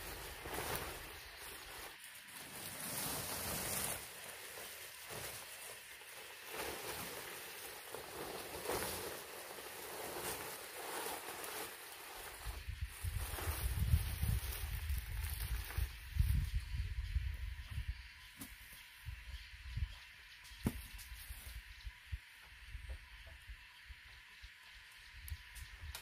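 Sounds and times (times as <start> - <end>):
palm leaves rustling: 0.0 - 16.6.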